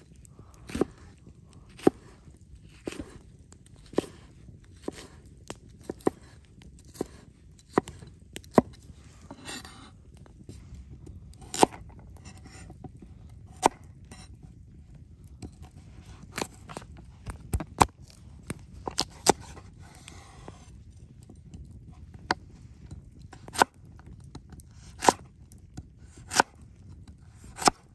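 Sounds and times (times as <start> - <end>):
knife chopping on wooden board: 0.7 - 1.1, 1.7 - 3.2, 3.8 - 5.2, 5.8 - 9.9, 11.4 - 12.6, 13.5 - 14.3, 18.9 - 20.7, 24.9 - 25.3, 26.2 - 26.5, 27.5 - 27.9.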